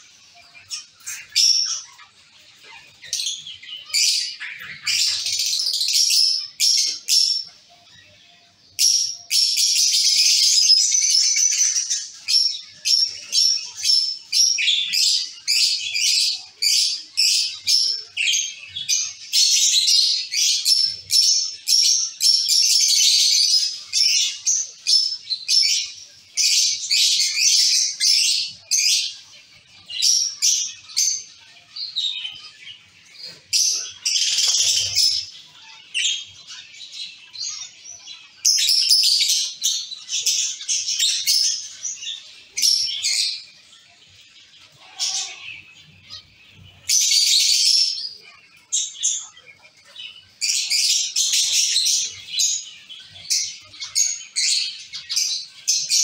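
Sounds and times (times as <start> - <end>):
finches chirping: 0.0 - 56.0.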